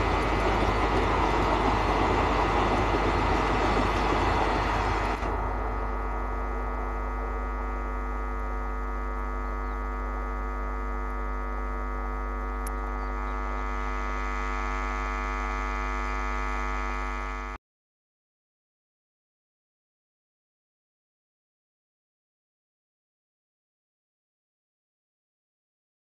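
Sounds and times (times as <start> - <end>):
steady hum: 0.0 - 17.6.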